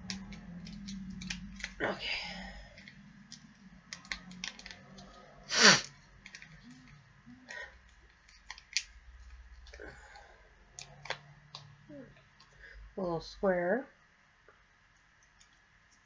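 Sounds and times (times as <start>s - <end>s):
gum wrapper crinkling: 0.0s - 2.0s, 2.7s - 9.8s.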